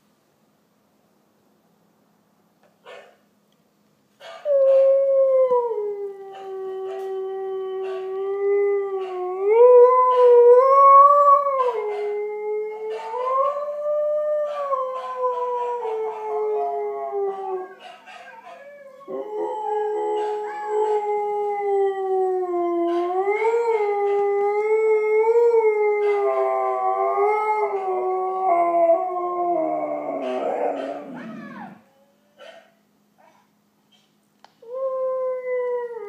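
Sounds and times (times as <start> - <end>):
husky howling: 4.4 - 31.9.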